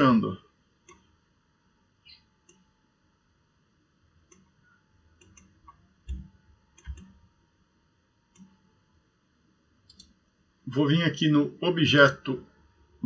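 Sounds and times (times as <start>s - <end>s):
computer mouse clicks: 2.0s - 2.7s, 4.2s - 4.6s, 5.2s - 7.2s, 8.3s - 8.7s, 9.8s - 10.2s.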